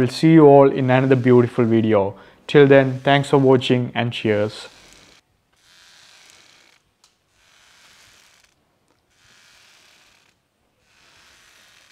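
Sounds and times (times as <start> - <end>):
rope swing creaking: 4.3 - 11.9.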